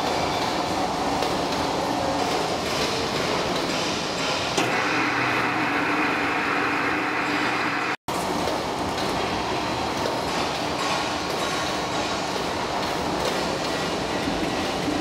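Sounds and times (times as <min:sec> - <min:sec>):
plate rolling machine running: 0:00.0 - 0:15.0.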